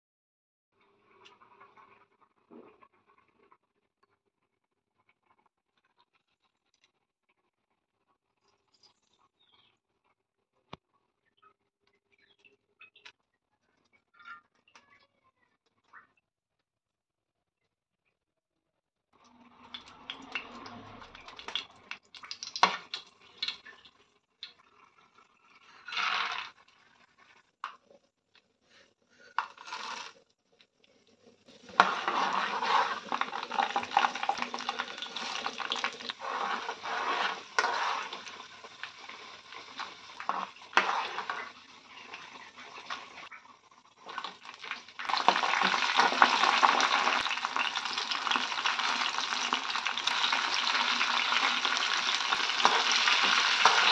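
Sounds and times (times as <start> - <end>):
food sizzling in hot oil: 22.2 - 23.6, 31.6 - 43.3, 43.9 - 53.9
spoon stirring and scraping: 31.6 - 43.0, 50.0 - 53.9.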